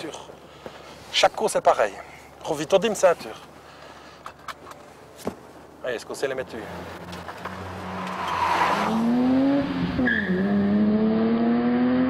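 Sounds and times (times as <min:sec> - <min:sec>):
car engine revving: 0:06.6 - 0:12.0.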